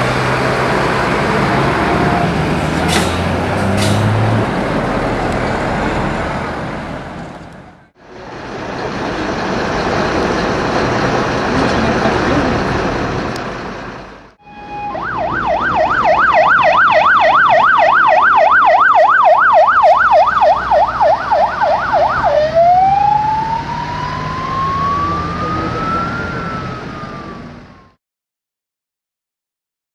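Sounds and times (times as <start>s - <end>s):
vehicle noise: 0.0s - 28.0s
ambulance siren: 14.4s - 28.0s.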